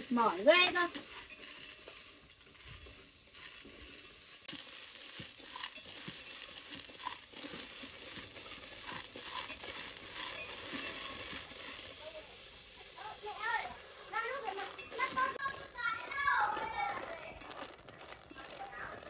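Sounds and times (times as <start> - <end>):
snails sizzling in a pot: 0.0 - 19.0.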